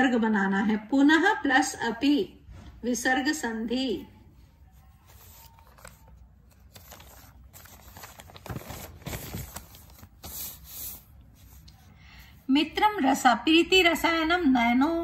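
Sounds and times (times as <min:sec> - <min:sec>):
paper rustling and scraping: 0:04.8 - 0:11.6.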